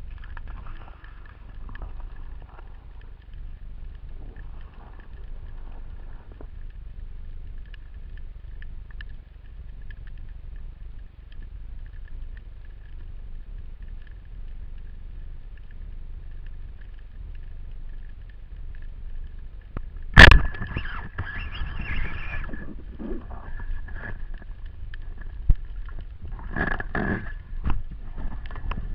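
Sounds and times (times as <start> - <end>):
faint ticks: 0.0 - 28.9
muffled underwater rumble: 0.0 - 28.9
shaft and line rattling: 20.2 - 28.9.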